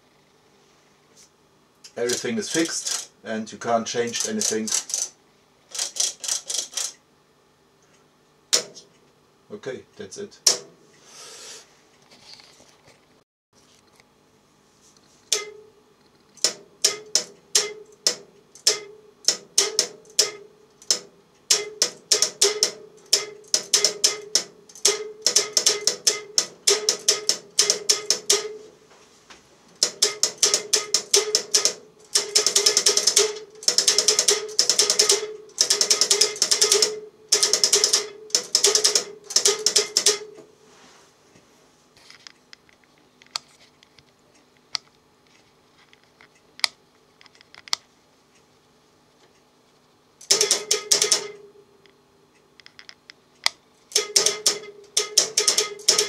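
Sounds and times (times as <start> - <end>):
relays clicking: 1.8 - 3.1, 4.0 - 7.0, 16.4 - 28.6, 29.8 - 40.3, 50.2 - 51.5, 53.4 - 56.0.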